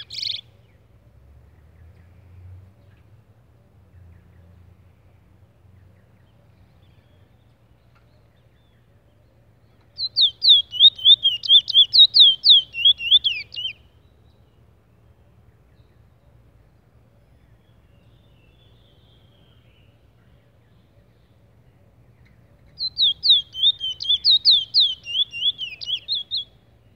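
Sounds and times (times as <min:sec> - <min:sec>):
bird singing whistled notes: 0:00.0 - 0:00.6, 0:09.7 - 0:14.6, 0:17.4 - 0:26.9.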